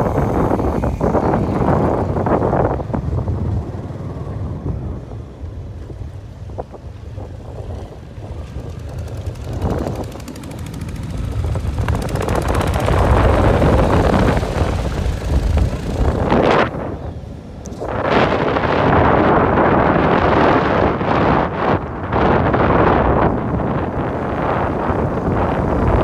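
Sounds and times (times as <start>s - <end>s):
vehicle engine running: 0.0s - 19.2s
wind buffeting microphone: 0.0s - 26.0s.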